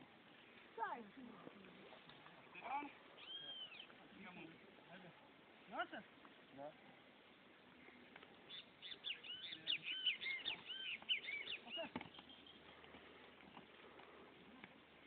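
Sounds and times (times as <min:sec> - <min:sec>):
bird chirping: 0:02.6 - 0:04.4, 0:07.8 - 0:12.8.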